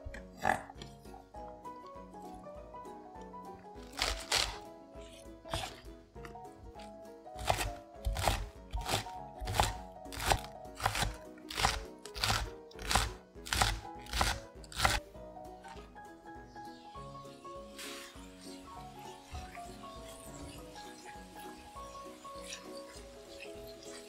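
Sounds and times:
background music: 0.0 - 24.0
knife chopping on wooden board: 3.9 - 4.6, 5.5 - 5.8, 7.4 - 15.0.

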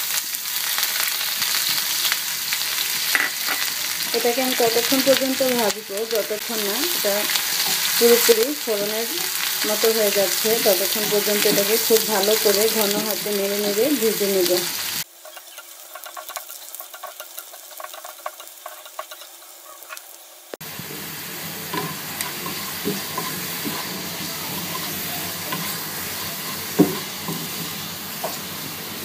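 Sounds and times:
onion sizzling in hot oil: 0.0 - 29.0
spatula scraping and clicking: 15.2 - 20.0.

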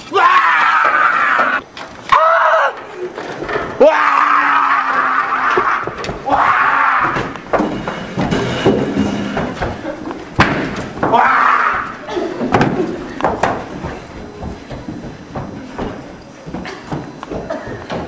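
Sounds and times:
people shrieking: 0.0 - 2.9, 3.8 - 7.4, 11.0 - 12.3
chairs knocked about: 5.4 - 18.0
bangs and thuds: 5.6 - 18.0.

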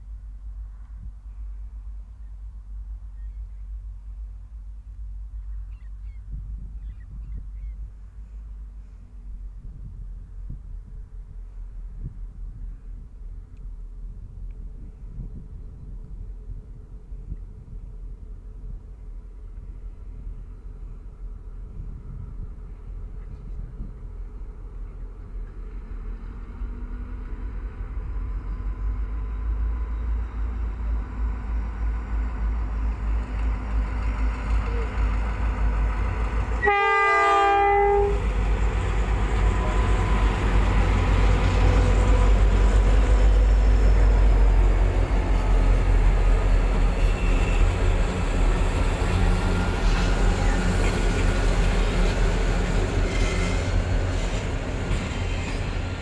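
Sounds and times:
diesel locomotive rumble: 0.0 - 56.0
train wheels rumbling and clicking: 9.4 - 36.7, 37.3 - 56.0
locomotive horn: 36.6 - 40.4, 46.8 - 48.3.

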